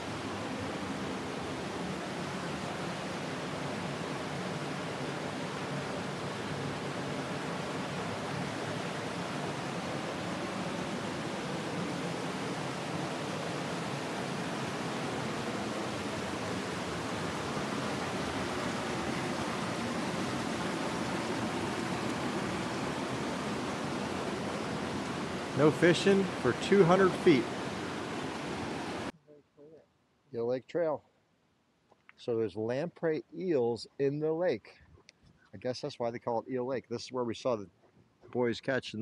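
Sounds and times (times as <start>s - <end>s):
rushing white water: 0.0s - 29.1s.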